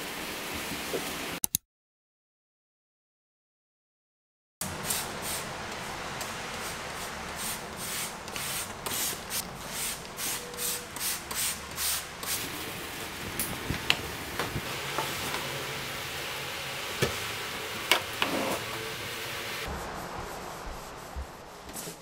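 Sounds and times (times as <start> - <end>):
cloth wiping steel: 19.7 - 22.0.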